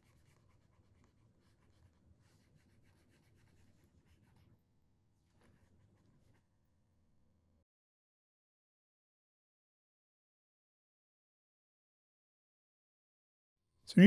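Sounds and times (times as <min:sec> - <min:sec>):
stylus scratching on drawing tablet: 0:00.0 - 0:04.6, 0:05.3 - 0:06.5.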